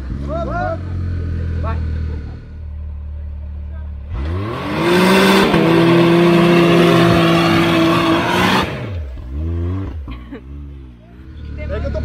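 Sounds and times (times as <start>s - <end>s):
engine revving hard: 4.0s - 12.0s.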